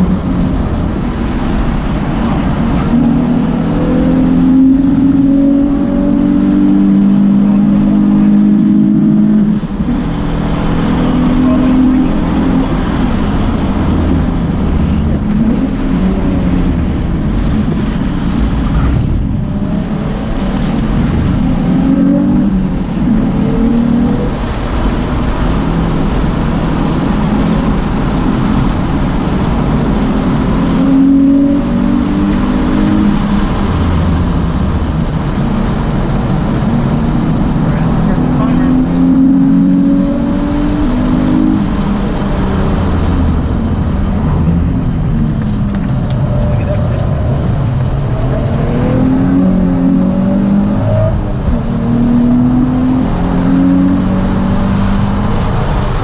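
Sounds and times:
car engine revving: 0.0s - 56.0s
road and wind noise: 0.0s - 56.0s.

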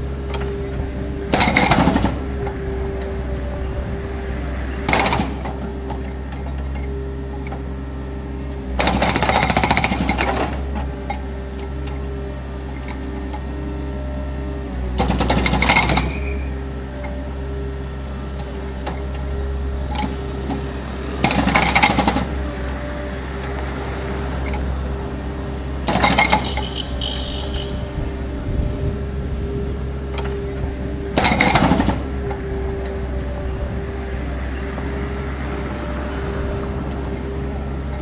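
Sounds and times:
loader engine running: 0.0s - 38.0s
hydraulic breaker hammering pavement: 0.3s - 2.6s, 4.8s - 6.7s, 8.7s - 11.2s, 15.0s - 16.5s, 19.9s - 22.7s, 25.8s - 27.8s, 30.1s - 32.8s.

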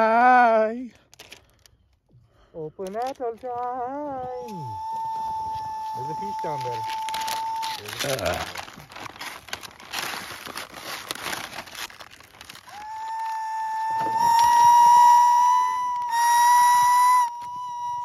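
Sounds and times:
high whistling tone: 4.2s - 8.5s, 13.8s - 18.0s.

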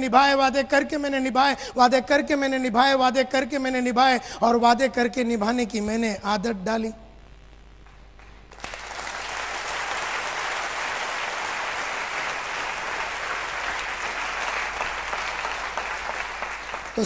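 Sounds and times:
large audience applauding: 8.2s - 17.0s.

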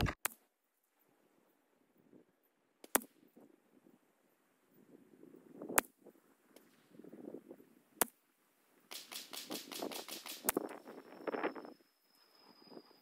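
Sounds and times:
rifle shots: 8.9s - 10.5s.

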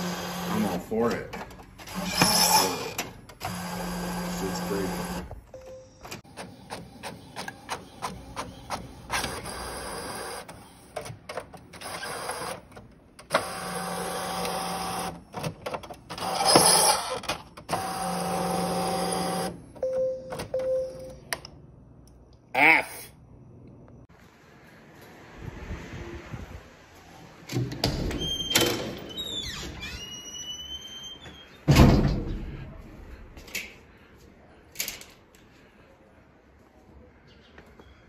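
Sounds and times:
print carriage whirring: 0.0s - 5.3s, 6.2s - 19.6s.

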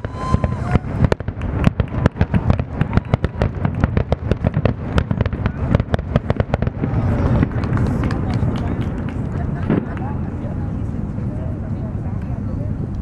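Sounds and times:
fireworks bangs and cracks: 0.0s - 12.3s
steady low rumble: 0.0s - 13.0s.

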